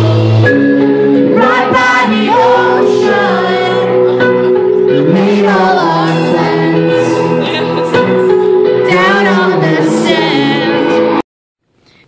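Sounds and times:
live band playing: 0:00.0 - 0:11.2
man singing: 0:04.9 - 0:11.0.

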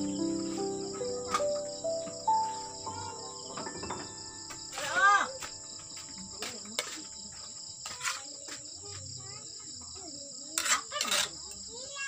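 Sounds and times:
crickets chirping: 0:00.0 - 0:12.0
metal spatula scraping a wok: 0:10.6 - 0:11.4.

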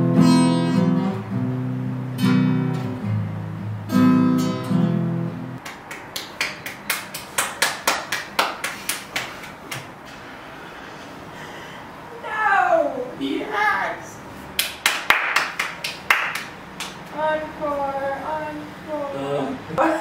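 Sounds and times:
acoustic guitar strumming chords: 0:00.0 - 0:05.6.

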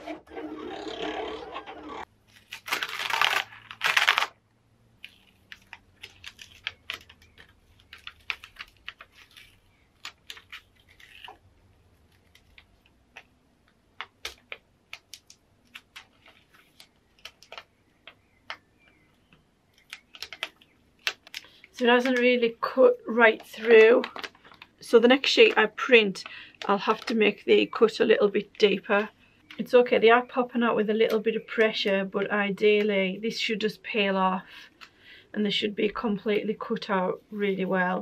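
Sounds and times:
sticker paper peeling and crackling: 0:01.9 - 0:04.4, 0:05.0 - 0:29.7
paper rustling: 0:05.0 - 0:13.4, 0:14.0 - 0:19.0, 0:19.8 - 0:27.4.

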